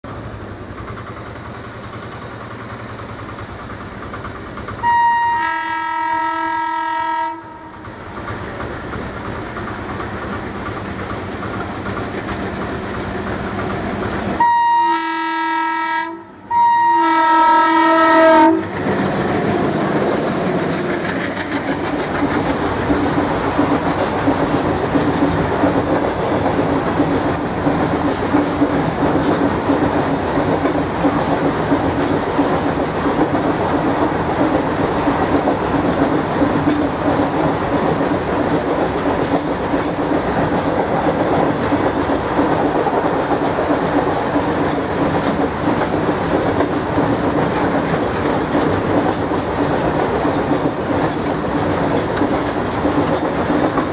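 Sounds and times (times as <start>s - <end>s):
diesel locomotive engines running: 0.0s - 53.9s
wagon wheels clacking on rails: 0.1s - 5.3s, 7.3s - 14.7s, 16.6s - 53.9s
multi-tone train horn: 4.8s - 8.0s, 14.4s - 18.8s.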